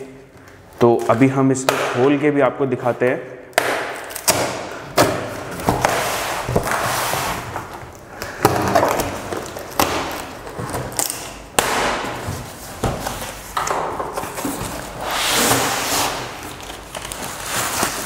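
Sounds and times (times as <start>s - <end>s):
packing tape ripping: 14.8s - 18.0s.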